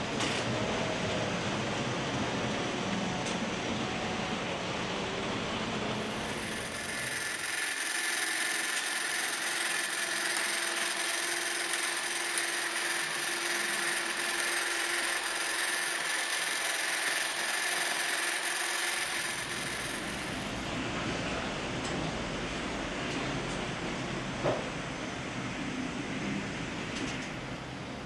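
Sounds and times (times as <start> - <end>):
wheel and rail noise: 0.1 - 24.7
model train motor whirring: 6.0 - 20.7.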